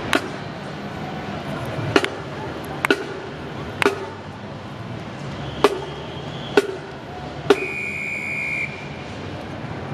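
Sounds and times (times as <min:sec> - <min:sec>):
high whistle-like tone: 0:05.4 - 0:06.8, 0:07.5 - 0:09.1.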